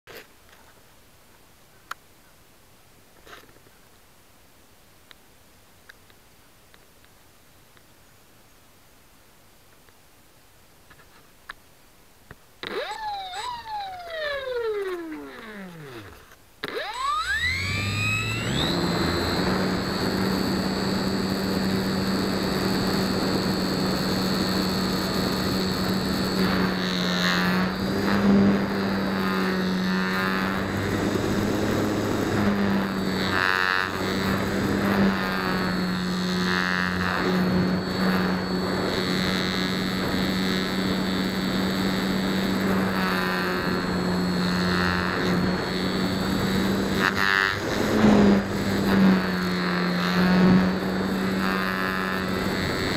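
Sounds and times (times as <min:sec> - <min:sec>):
electric motor and propeller whine: 0:12.6 - 0:52.9.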